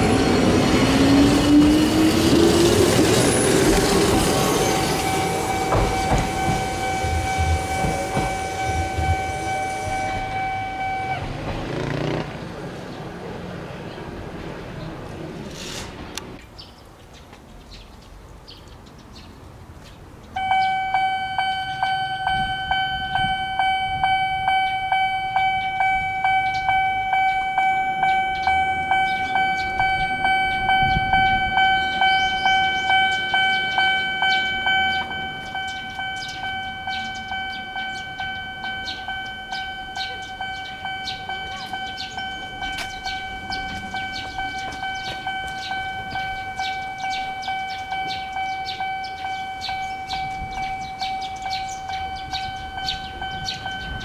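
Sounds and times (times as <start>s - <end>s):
level crossing warning bell: 0.0s - 12.3s, 20.4s - 54.0s.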